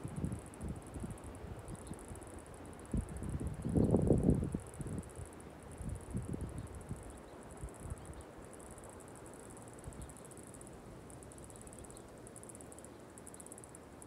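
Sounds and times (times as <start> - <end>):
wind rumble on microphone: 0.0 - 2.0, 2.9 - 7.1
insects trilling: 0.0 - 14.0.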